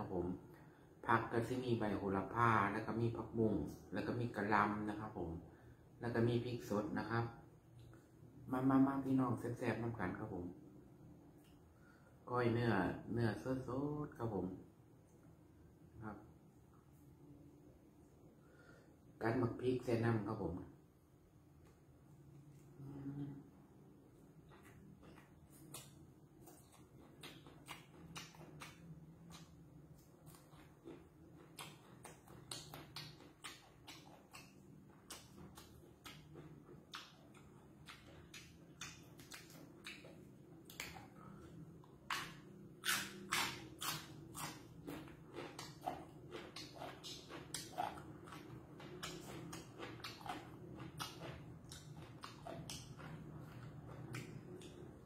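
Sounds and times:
low hum: 20.4s - 55.0s
person chewing with wet crunches: 23.8s - 55.0s.

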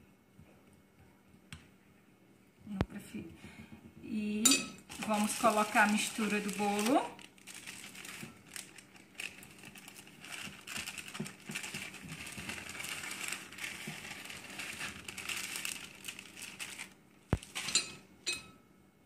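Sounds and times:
plastic bag crinkling: 4.8s - 18.0s.

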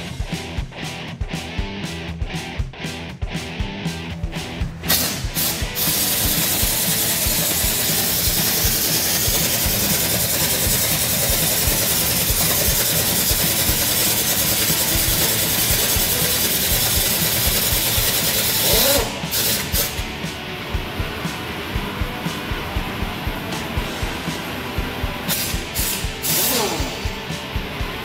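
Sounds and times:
pneumatic impact wrench hammering: 4.8s - 20.1s, 25.2s - 28.0s.

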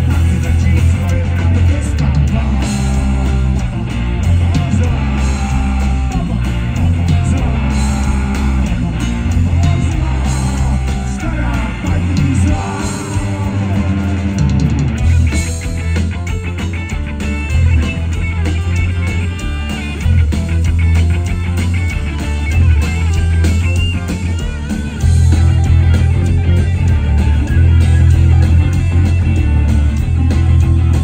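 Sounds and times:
man singing: 0.0s - 14.4s
bass guitar: 0.0s - 31.0s
drums: 0.0s - 31.0s
electric guitars: 0.0s - 31.0s.

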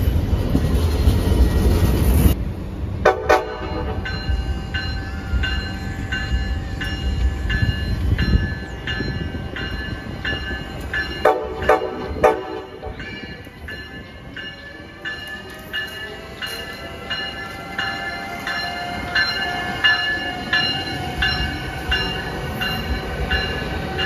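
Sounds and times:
low train rumble: 0.0s - 24.0s
train horn: 3.0s - 4.1s, 11.2s - 13.0s.

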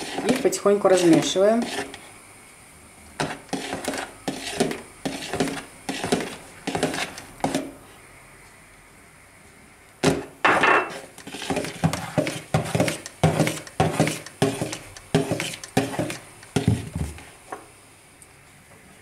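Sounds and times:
mixer beaters knocking plastic bowl: 0.0s - 1.4s, 10.0s - 17.2s.

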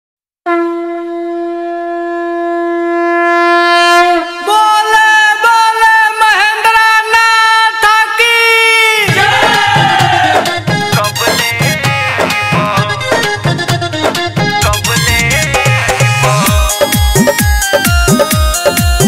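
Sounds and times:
reedy wind instrument melody: 0.5s - 5.2s, 14.6s - 19.0s
drums: 9.0s - 19.0s
bass: 9.1s - 19.0s.

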